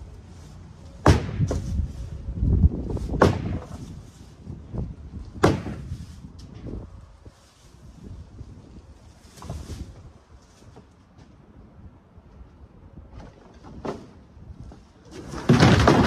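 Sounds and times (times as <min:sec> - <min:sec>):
digging tool striking ground: 0:03.1 - 0:03.8
light knocks and scraping: 0:09.2 - 0:11.4.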